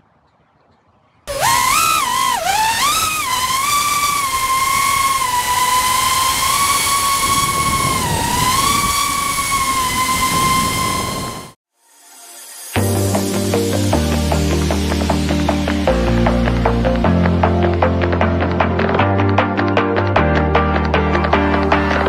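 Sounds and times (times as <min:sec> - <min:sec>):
quadcopter motors whining: 0:01.3 - 0:11.6.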